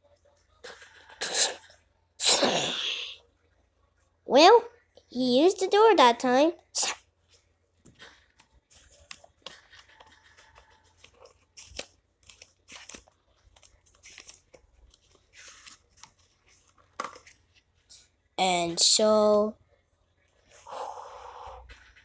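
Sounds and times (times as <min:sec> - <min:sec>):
book pages rustling and turning: 0:07.2 - 0:18.1, 0:21.7 - 0:22.0.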